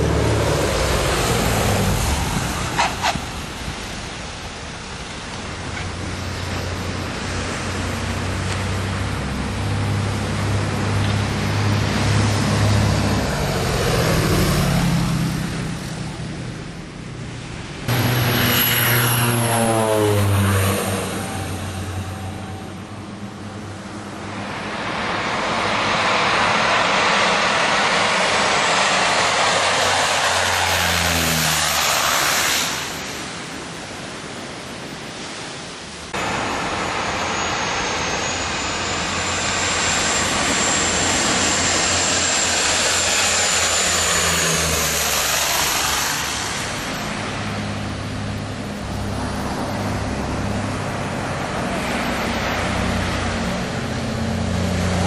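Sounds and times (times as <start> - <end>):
wind noise: 0.0 - 16.4
wind rumble on microphone: 0.0 - 19.5
propeller planes passing overhead: 0.0 - 55.0.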